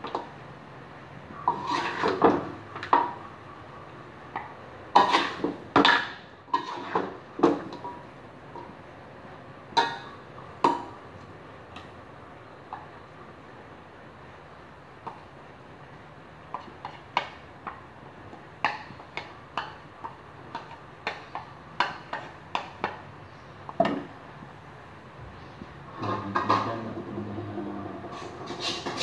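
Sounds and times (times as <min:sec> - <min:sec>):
spatula scraping steel wok: 0:01.4 - 0:02.3, 0:05.0 - 0:05.6, 0:06.5 - 0:07.2, 0:28.0 - 0:29.0.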